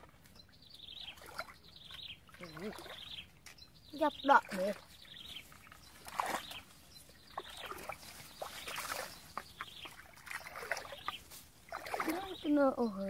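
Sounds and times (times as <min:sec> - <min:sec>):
water plinks: 0:00.0 - 0:13.0
splashes in shallow water: 0:01.0 - 0:12.6
rustling brush: 0:07.8 - 0:12.4.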